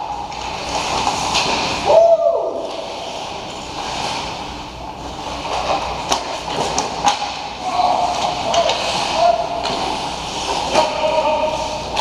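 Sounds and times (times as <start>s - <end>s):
skate blades scraping ice: 0.0s - 2.0s, 2.6s - 12.0s
hockey stick or puck clicks: 5.4s - 7.5s.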